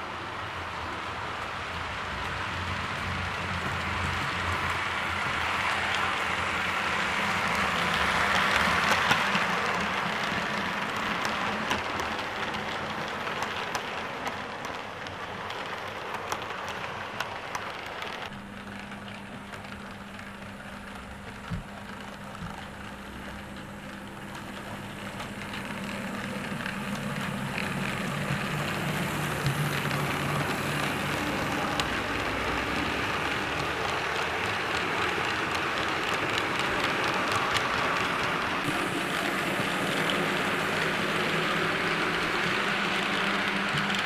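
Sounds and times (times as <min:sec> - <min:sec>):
model train rushing on track: 0:00.0 - 0:44.0
wheels clicking over rail joints: 0:01.4 - 0:44.0
low motor hum: 0:18.3 - 0:33.5.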